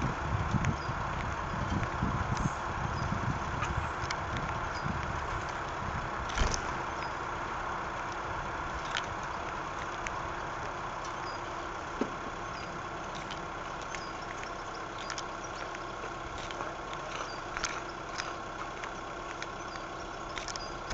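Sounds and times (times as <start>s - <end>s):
steady low hum: 0.0s - 20.9s
birds pecking on wooden tray: 8.0s - 20.9s
faint high bird chirps: 13.7s - 15.8s, 17.0s - 18.2s, 18.8s - 20.9s.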